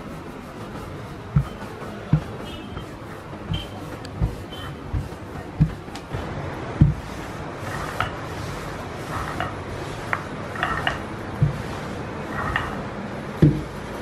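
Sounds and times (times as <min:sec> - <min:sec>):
rolling pin rubbing over dough: 0:00.0 - 0:14.0
dull knock: 0:01.3 - 0:06.0, 0:06.8 - 0:07.1, 0:13.4 - 0:13.7.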